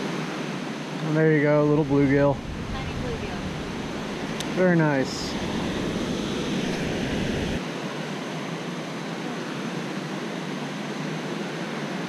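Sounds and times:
low rumble: 1.8 - 7.6.

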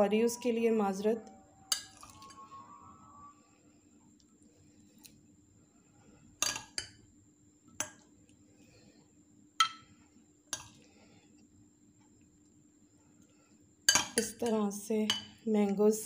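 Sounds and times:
metal spoon clinking on bowl: 1.7 - 2.4.

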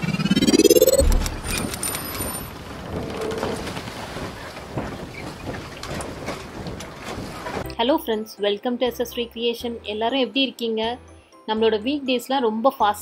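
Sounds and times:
low boom: 0.0 - 1.8
rising whoosh: 0.0 - 2.0
noisy rumbling wash: 0.0 - 7.3.

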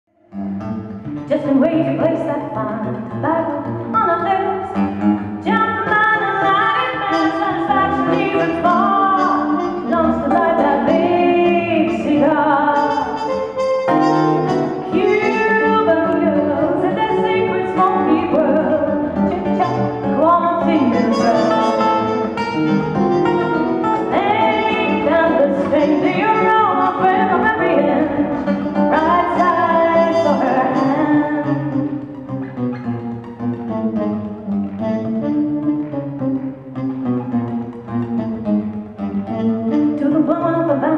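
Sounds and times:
instrumental accompaniment with bass: 0.3 - 40.9
woman singing into microphone: 1.3 - 13.4, 14.0 - 22.1, 24.0 - 32.0, 39.9 - 40.9.

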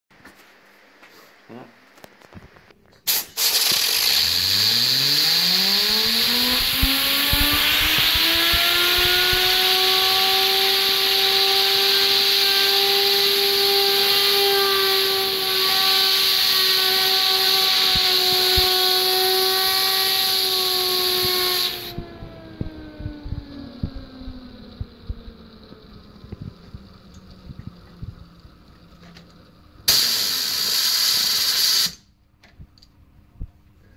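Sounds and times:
compressed air hissing: 3.1 - 22.0, 29.9 - 32.1
fidget spinner whine: 3.4 - 32.0.

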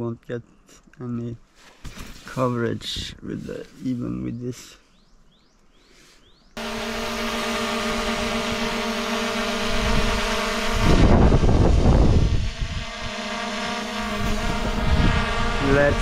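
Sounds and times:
drone propellers whining: 6.6 - 16.0
loud rush of air: 10.7 - 12.8.

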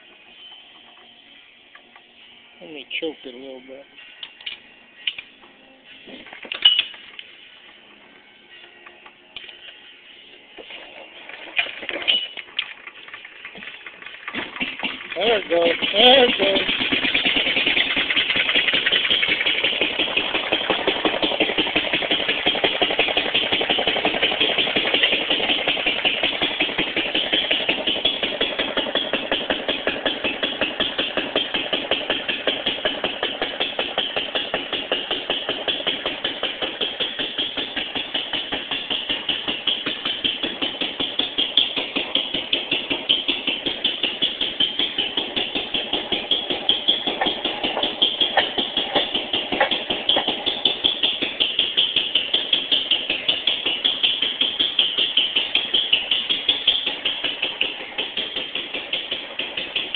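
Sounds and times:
stationary gas engine running: 12.6 - 59.9.

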